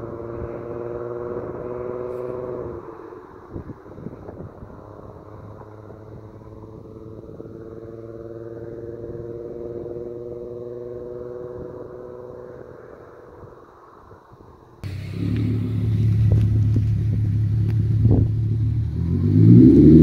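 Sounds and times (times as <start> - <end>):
car engine and exhaust droning: 0.0 - 20.0.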